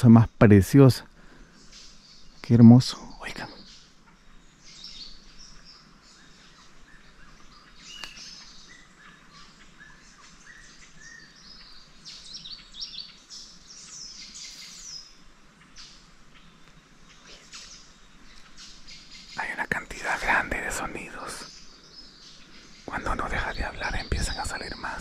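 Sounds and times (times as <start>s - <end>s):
birds chirping and trilling: 0.0s - 25.0s
sharp click: 8.0s - 8.2s.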